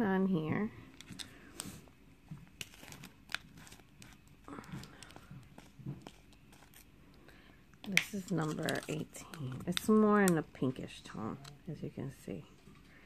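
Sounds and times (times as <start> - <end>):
light crinkling rustle: 7.8 - 10.4.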